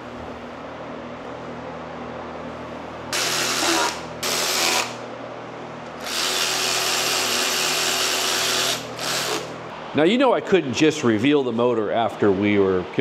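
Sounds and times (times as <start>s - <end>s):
cordless power driver spinning bolts: 6.0s - 9.5s.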